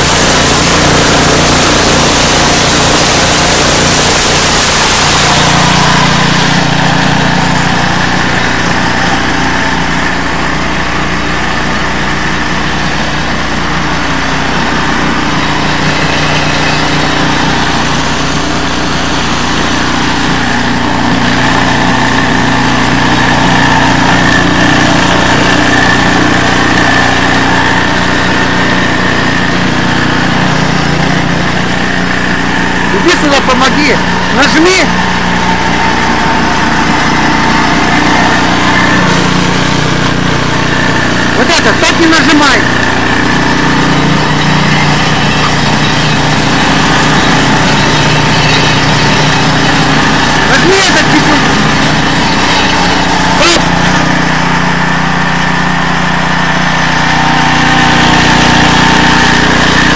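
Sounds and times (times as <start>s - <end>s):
loud rushing hiss: 0.0s - 11.0s
snowblower engine running: 0.0s - 59.9s.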